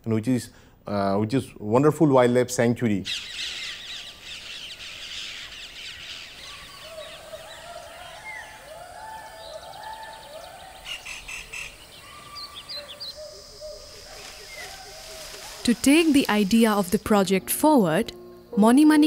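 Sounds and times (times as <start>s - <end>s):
flock of birds chattering: 3.1s - 17.4s
chorus of rising and falling calls: 6.1s - 15.6s.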